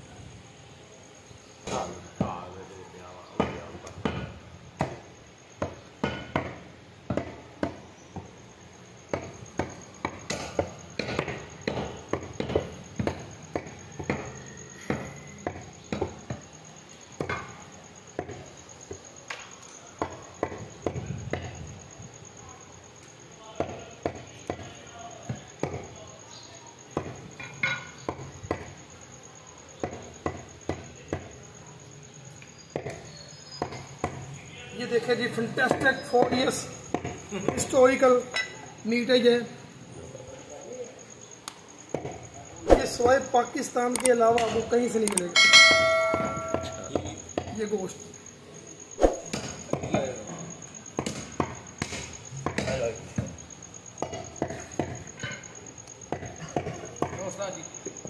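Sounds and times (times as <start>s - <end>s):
cleaver chopping meat on wood: 9.1s - 16.3s.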